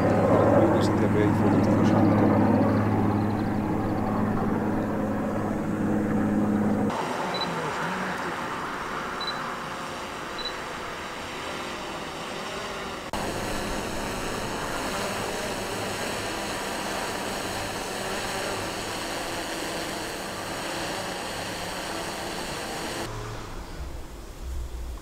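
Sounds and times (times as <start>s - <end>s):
distant helicopter drone: 0.0s - 25.0s.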